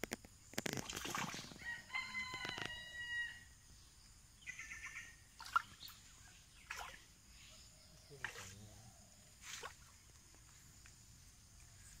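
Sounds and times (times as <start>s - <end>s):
sharp water splash: 0.8s - 1.6s, 5.4s - 6.0s, 6.6s - 7.1s, 8.2s - 8.6s, 9.4s - 10.0s
rooster crowing: 1.6s - 3.5s.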